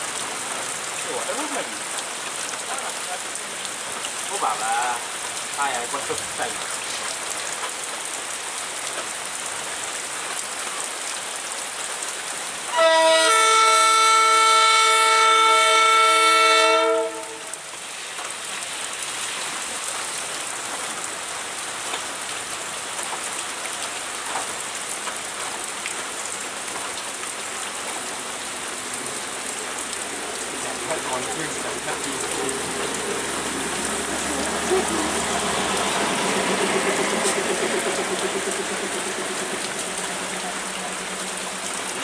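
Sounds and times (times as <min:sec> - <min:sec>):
heavy rain hissing: 0:00.0 - 0:42.0
long air horn blast: 0:12.7 - 0:17.6.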